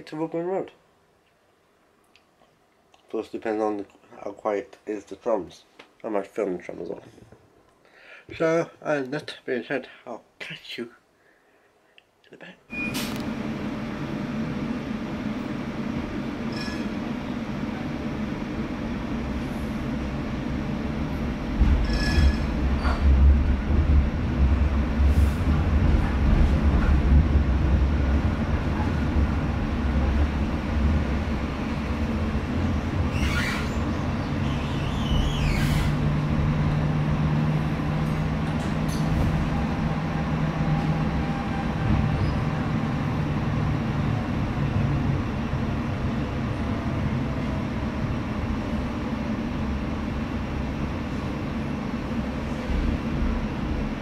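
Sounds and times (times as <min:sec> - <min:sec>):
tram rumble and motor hum: 0:12.8 - 0:54.0
high-pitched squeal: 0:16.5 - 0:16.9, 0:21.8 - 0:23.1, 0:33.1 - 0:36.0.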